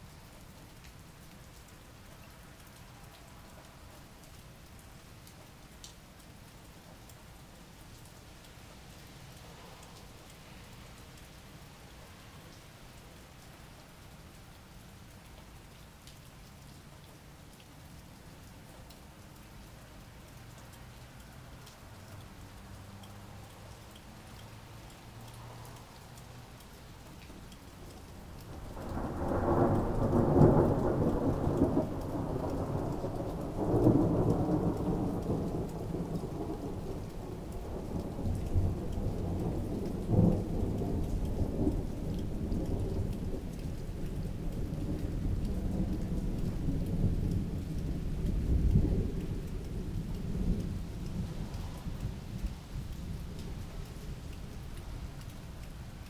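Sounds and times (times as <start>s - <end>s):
light rain: 0.0s - 56.0s
rolling thunder: 28.5s - 53.8s.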